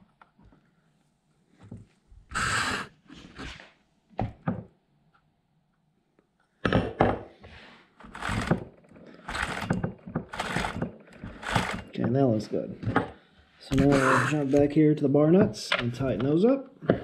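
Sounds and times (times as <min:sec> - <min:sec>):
chain scraping along bar: 0:08.0 - 0:12.0
wrench scraping and knocking: 0:08.0 - 0:12.2.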